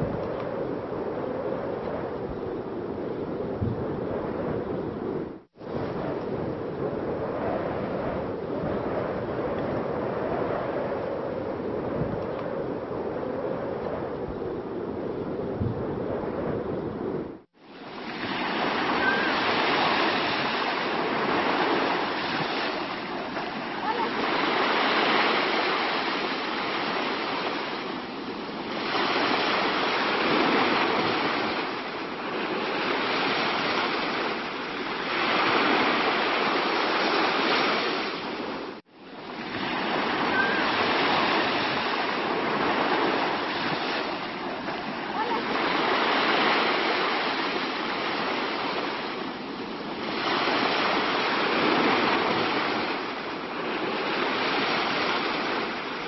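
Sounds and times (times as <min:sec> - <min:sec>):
sea waves washing: 0:15.5 - 0:56.0.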